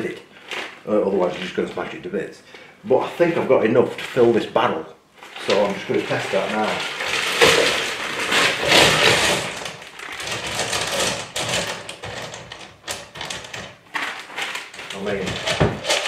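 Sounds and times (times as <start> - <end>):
plastic bag crinkling: 0.0 - 2.0, 5.2 - 16.0.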